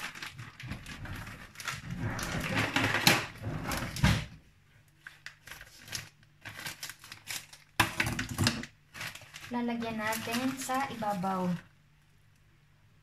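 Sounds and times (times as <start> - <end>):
plastic bag crinkling: 0.0 - 4.0, 4.9 - 11.8.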